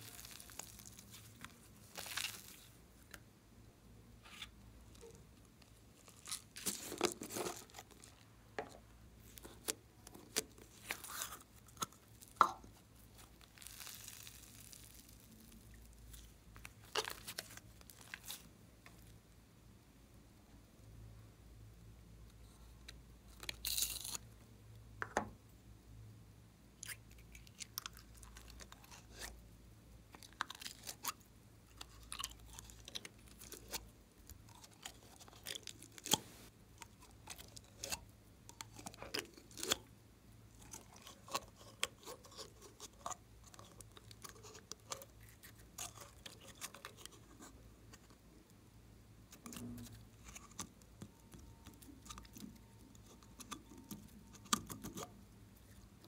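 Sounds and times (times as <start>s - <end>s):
slime squishing and crackling: 0.0s - 2.8s, 5.9s - 8.3s, 9.2s - 18.5s.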